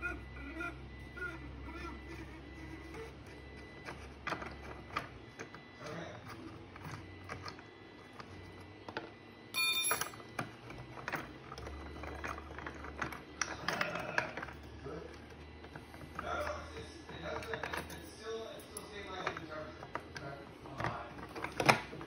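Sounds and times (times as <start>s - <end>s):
plastic parts clicking: 10.0s - 16.5s, 18.8s - 22.0s.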